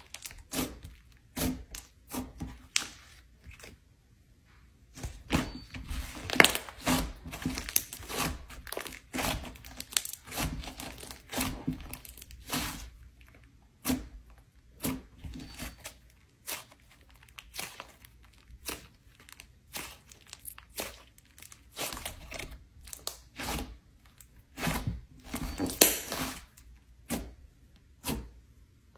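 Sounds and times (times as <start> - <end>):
sticky slime crackles and pops: 6.1 - 13.6, 14.8 - 24.7, 25.6 - 26.5.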